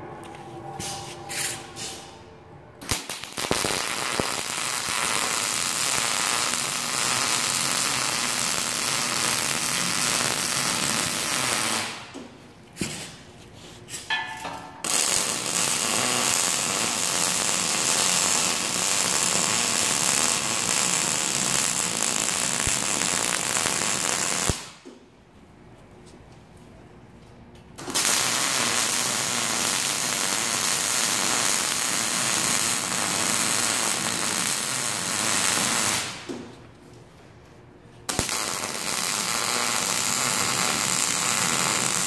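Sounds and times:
welder arc crackling: 2.8 - 12.1, 14.8 - 24.8, 27.8 - 36.3, 38.1 - 42.0.

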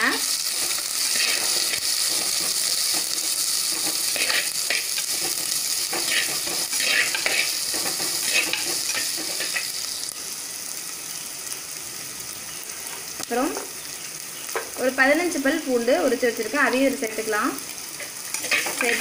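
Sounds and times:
shallots sizzling in hot oil: 0.0 - 19.0
steel ladle scraping a pot: 1.1 - 9.7, 18.0 - 19.0.

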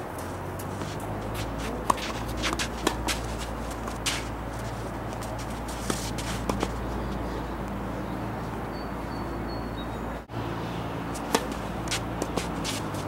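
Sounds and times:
tennis racket hitting ball: 0.2 - 6.9, 11.1 - 13.0
tennis ball bouncing: 0.2 - 7.3, 11.1 - 13.0.

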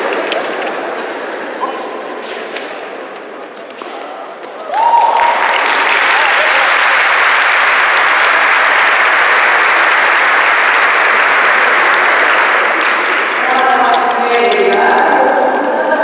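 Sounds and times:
audience applauding: 0.0 - 1.4, 4.6 - 16.0.

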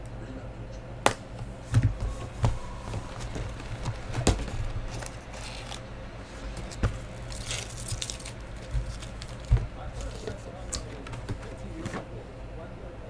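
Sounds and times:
low steady hum: 0.0 - 13.0
cardboard box being handled: 1.8 - 5.8, 6.4 - 12.1
foil packs crinkling: 2.2 - 11.8.

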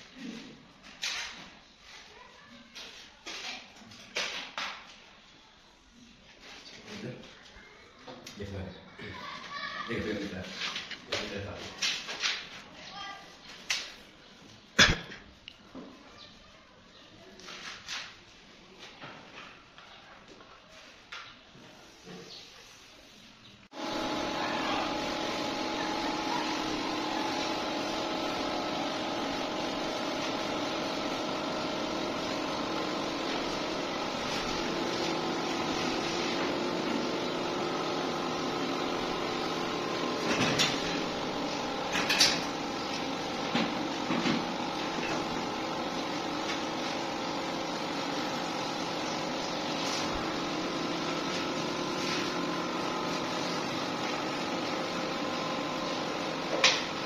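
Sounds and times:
steady mechanical hum: 23.7 - 57.0.

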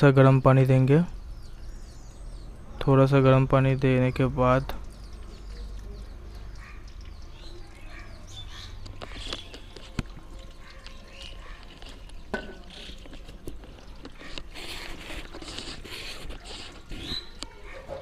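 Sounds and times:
water splashing into a metal basin: 3.6 - 15.4.

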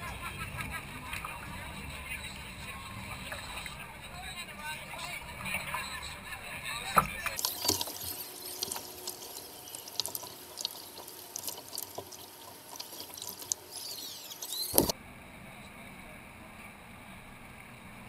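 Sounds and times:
water splashing and dripping: 7.0 - 14.9.

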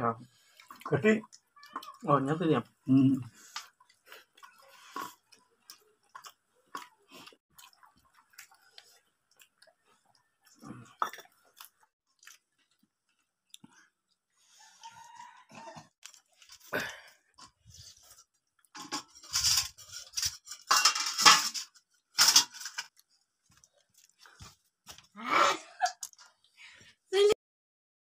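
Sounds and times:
chewing: 0.3 - 2.0, 3.3 - 18.8, 22.9 - 25.1
steel dishes clinking and scraping: 18.8 - 22.9.

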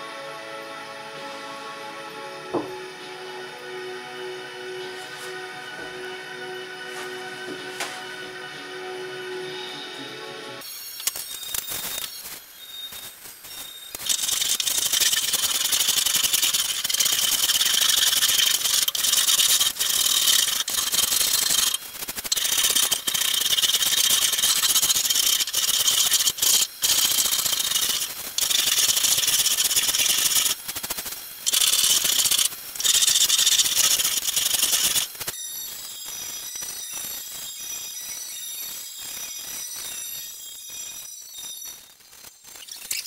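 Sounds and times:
sanding wood: 14.0 - 30.6.

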